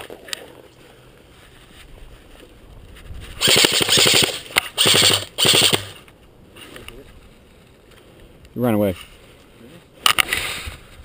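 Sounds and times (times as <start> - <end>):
airsoft pistol firing bursts: 3.4 - 6.0.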